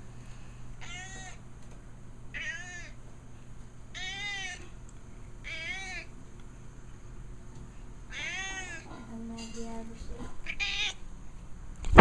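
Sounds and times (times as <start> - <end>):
cat meowing: 0.8 - 1.4, 2.3 - 3.0, 3.9 - 4.8, 5.4 - 6.1, 8.1 - 8.9, 10.5 - 11.0.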